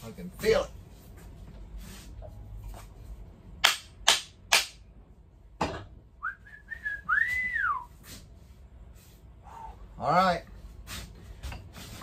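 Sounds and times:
man whistling tune: 0:06.2 - 0:08.0.

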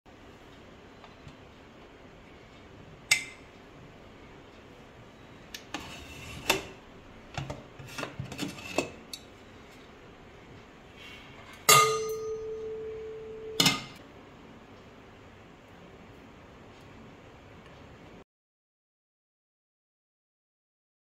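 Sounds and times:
metal clank: 0:11.6 - 0:12.7
loud metallic clang ringing: 0:11.6 - 0:14.0.

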